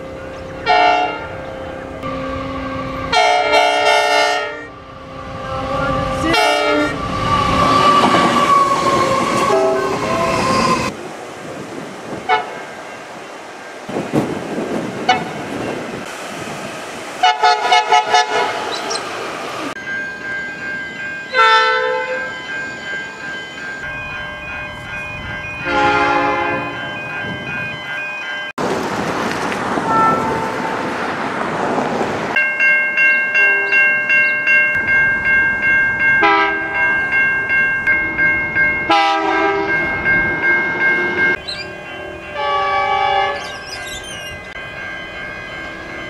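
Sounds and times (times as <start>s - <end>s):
level-crossing warning bell: 0.0s - 11.0s, 17.7s - 28.6s, 32.3s - 46.0s
train passing: 0.0s - 46.0s
locomotive horn blasts: 0.6s - 7.0s, 9.3s - 10.0s, 12.3s - 12.6s, 15.1s - 15.4s, 17.2s - 18.8s, 21.3s - 22.3s, 25.6s - 26.8s, 29.9s - 30.8s, 36.2s - 36.8s, 38.9s - 39.8s, 41.4s - 43.5s.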